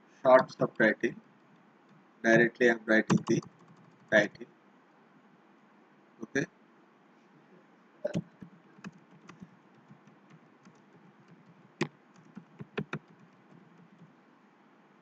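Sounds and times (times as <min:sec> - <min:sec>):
keyboard typing clicks: 0:03.1 - 0:04.2, 0:08.1 - 0:14.1.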